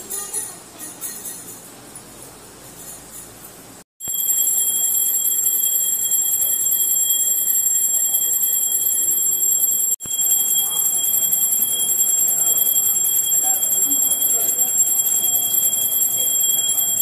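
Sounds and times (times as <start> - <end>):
bell ringing rapidly: 4.0 - 17.0.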